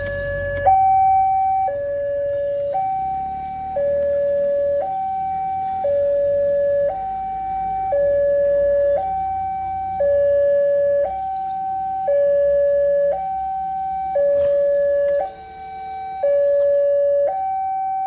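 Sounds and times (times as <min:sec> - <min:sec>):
two-tone level crossing alarm: 0:00.0 - 0:18.0.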